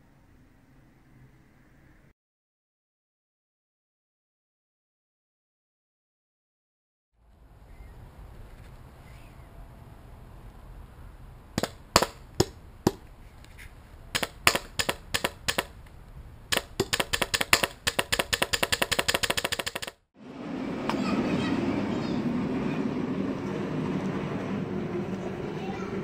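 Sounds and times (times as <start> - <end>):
airsoft gun firing: 11.6 - 13.0, 14.1 - 15.8, 16.5 - 20.0
steady noisy rumble: 20.2 - 26.0.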